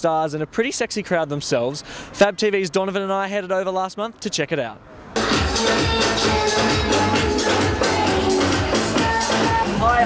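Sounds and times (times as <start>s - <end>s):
electronic dance music: 5.2s - 10.0s.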